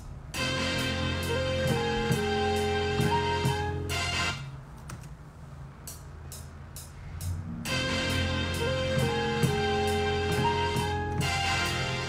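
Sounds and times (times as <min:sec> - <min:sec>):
programmed beat with bass: 0:00.0 - 0:04.5, 0:05.8 - 0:12.0
electronic keyboard chords and melody: 0:00.0 - 0:04.6, 0:07.5 - 0:12.0.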